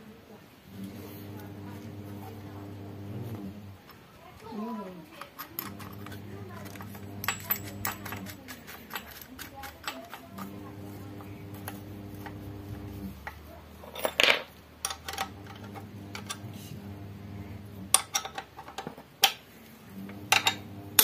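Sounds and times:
ratchet metallic clicks and clanks: 5.2s - 10.5s.

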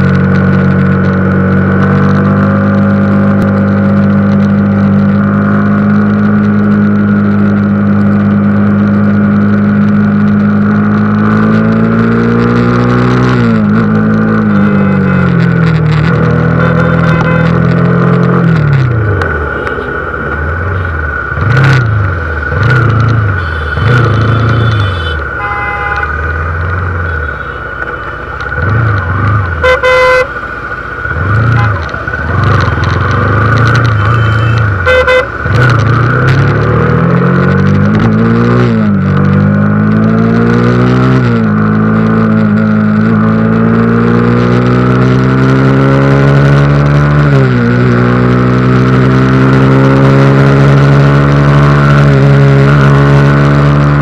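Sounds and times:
motorcycle engine revving: 0.0s - 54.0s
vehicle horn: 14.5s - 15.4s, 16.5s - 17.7s, 23.3s - 26.2s, 27.0s - 28.4s, 29.6s - 30.4s, 31.4s - 32.0s, 33.7s - 35.4s.

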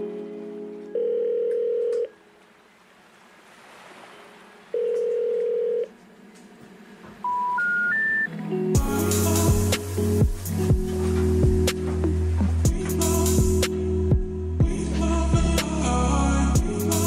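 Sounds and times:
steady telephone tones: 0.9s - 2.3s, 4.7s - 6.0s, 7.2s - 8.3s
rising three-tone telephone signal: 4.8s - 5.9s, 7.2s - 8.3s.

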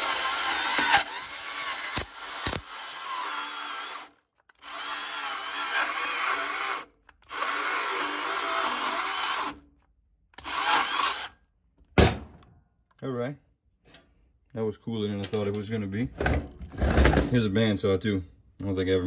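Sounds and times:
band saw cutting light bulb: 0.0s - 9.5s.

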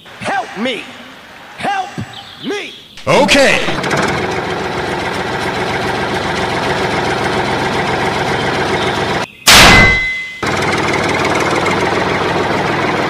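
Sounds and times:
tractor engine idling: 3.0s - 13.0s
loud blast: 9.5s - 10.5s.

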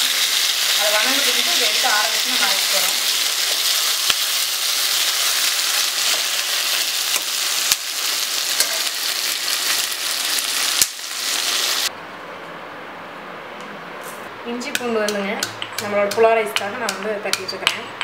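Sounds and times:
vegetables sizzling in oil: 0.0s - 11.9s.

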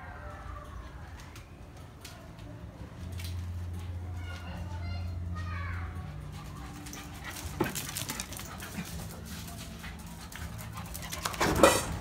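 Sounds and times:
dogs scuffling in play: 6.0s - 12.0s.

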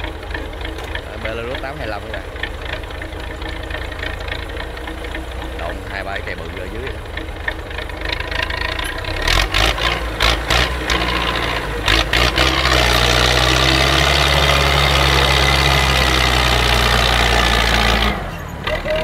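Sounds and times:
sharp knocks and clatter: 0.0s - 17.2s
tractor engine labouring: 0.0s - 19.0s.

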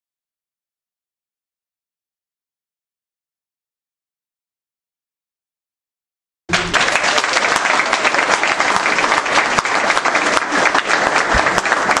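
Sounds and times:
audience applauding: 6.5s - 12.0s.

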